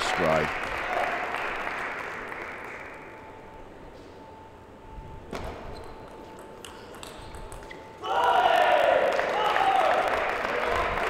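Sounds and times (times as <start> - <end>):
applause: 0.0 - 3.3, 8.5 - 11.0.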